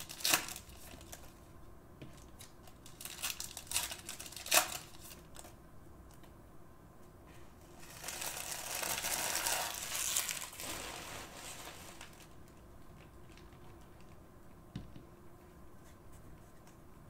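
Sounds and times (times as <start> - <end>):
plastic wrapping crinkling: 0.0 - 1.4, 2.2 - 5.5, 7.8 - 14.2.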